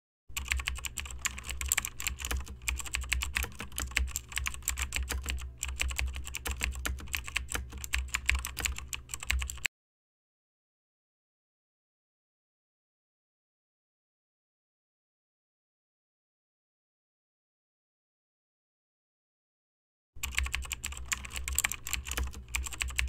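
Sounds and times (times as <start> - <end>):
fast keyboard typing: 0.3 - 9.7, 20.2 - 23.0
low steady hum: 0.3 - 9.7, 20.2 - 23.0.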